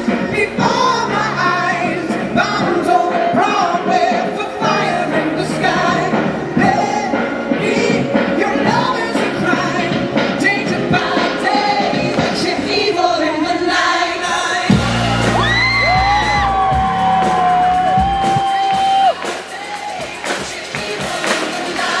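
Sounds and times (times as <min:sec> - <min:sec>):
heavy bass line: 0:14.7 - 0:19.2
audience whooping: 0:14.7 - 0:20.4
band playing: 0:14.7 - 0:22.0.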